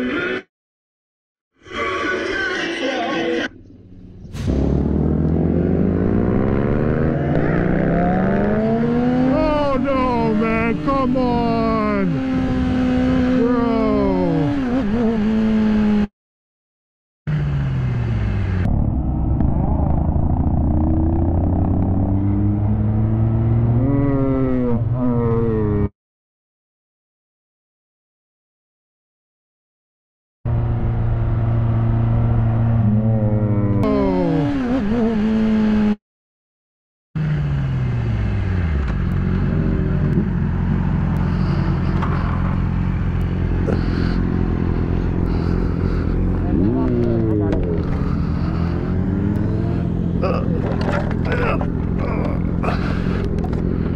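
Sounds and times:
road noise: 0:01.6 - 0:16.1, 0:17.3 - 0:25.9, 0:30.5 - 0:36.0, 0:37.2 - 0:53.9
motorcycle engine: 0:03.6 - 0:16.1, 0:17.3 - 0:24.7, 0:37.2 - 0:53.9
motorcycle engine running: 0:37.2 - 0:53.9.

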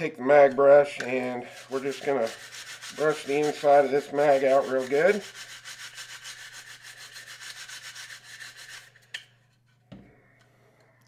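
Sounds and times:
brush scrubbing inside plastic magazine: 0:00.4 - 0:09.2.

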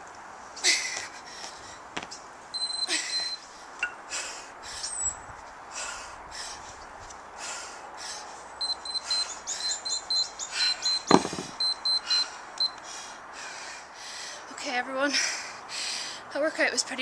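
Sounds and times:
hard rhythmic breathing: 0:02.9 - 0:14.5
kettlebells thudding on paving stones: 0:11.0 - 0:11.6.

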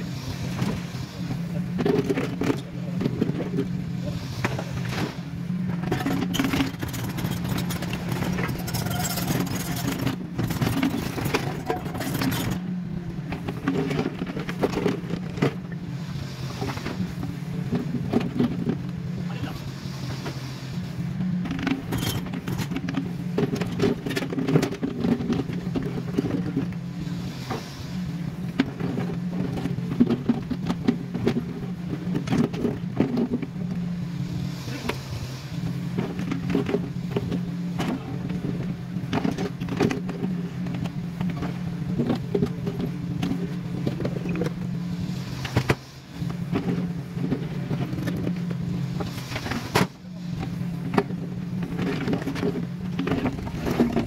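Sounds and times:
excavator diesel engine running: 0:05.3 - 0:15.4.

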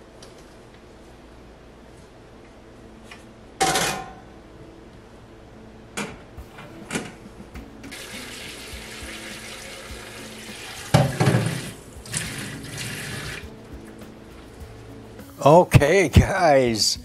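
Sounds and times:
tap running into metal sink: 0:09.9 - 0:13.4
metal pan clattering in sink: 0:10.9 - 0:11.7.

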